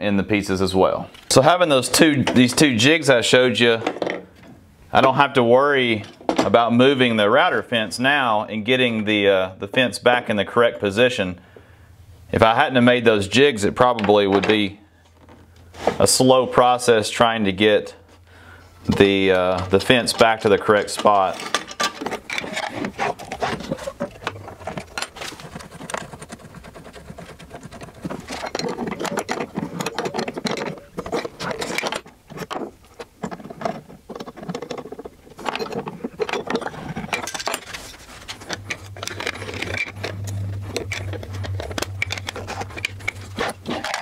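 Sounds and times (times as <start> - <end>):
low steady hum: 0.0 - 44.0
metal tool clicks and scrapes: 35.4 - 44.0.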